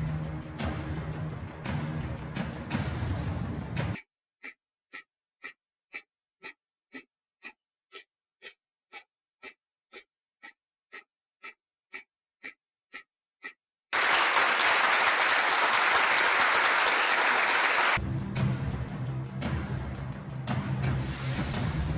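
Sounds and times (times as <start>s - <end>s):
countdown timer ticking: 0.0s - 13.7s, 18.0s - 21.9s
applause sound effect: 13.9s - 18.1s.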